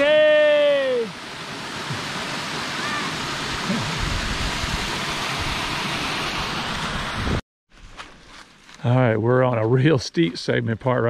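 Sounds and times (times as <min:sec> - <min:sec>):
creek water rushing over rocks: 0:00.2 - 0:07.3.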